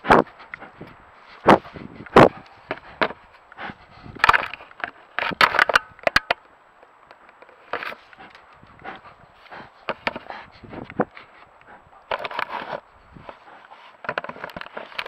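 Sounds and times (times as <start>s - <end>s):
knocks and scrapes on camera housing: 9.8s - 10.3s, 12.1s - 15.0s.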